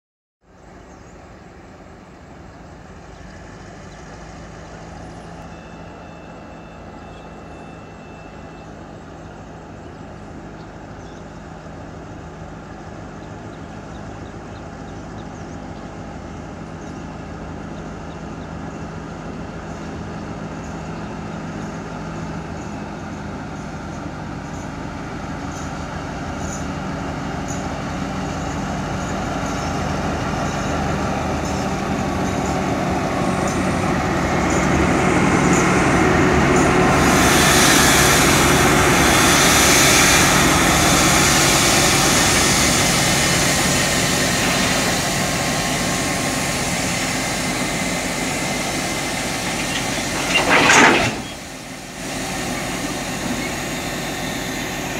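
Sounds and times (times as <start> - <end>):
diesel locomotive engine hum: 0.4 - 54.9.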